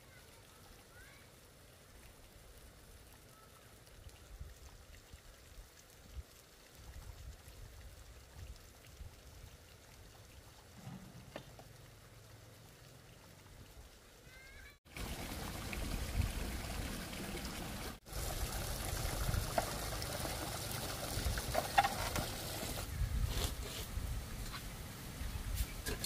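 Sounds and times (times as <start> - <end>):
water pouring into plastic bucket: 14.9 - 22.9.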